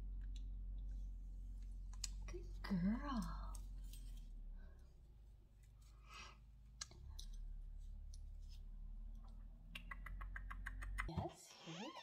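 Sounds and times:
low steady hum: 0:00.0 - 0:11.2
faint clicks and handling noises: 0:06.6 - 0:09.6.

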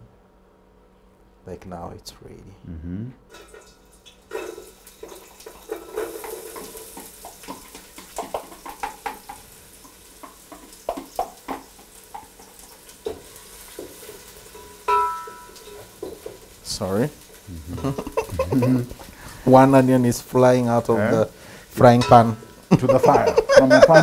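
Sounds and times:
onions sizzling in oil: 0:03.9 - 0:24.0
onion pieces knocking in pan: 0:05.6 - 0:16.6.

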